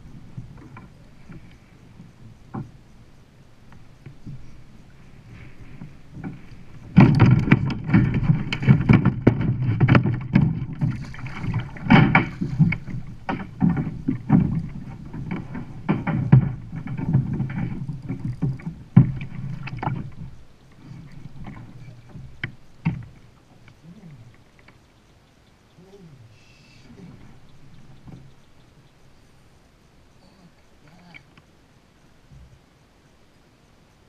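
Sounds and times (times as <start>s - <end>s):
water splashing against hull: 0.0s - 25.1s, 26.8s - 32.7s
knocks and thumps on hull: 0.1s - 1.4s, 2.4s - 2.8s, 5.1s - 24.8s, 27.0s - 28.6s.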